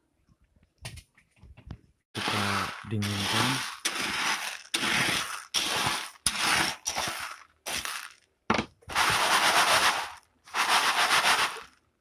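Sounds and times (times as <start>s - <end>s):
coffee beans rattling on tray: 2.2s - 8.2s, 8.9s - 11.8s.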